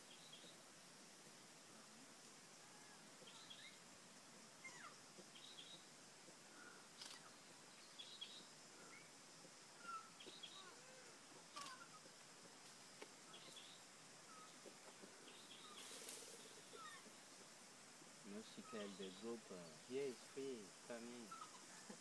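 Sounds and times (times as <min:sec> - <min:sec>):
faint short chirping calls: 0:02.6 - 0:03.8, 0:04.6 - 0:05.9, 0:06.5 - 0:09.1, 0:09.7 - 0:12.2, 0:13.2 - 0:17.4, 0:18.2 - 0:22.0
brief hiss: 0:15.6 - 0:16.7.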